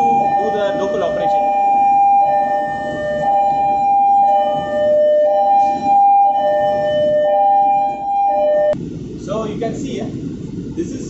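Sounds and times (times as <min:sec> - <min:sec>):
two-tone alarm: 0:00.0 - 0:08.8.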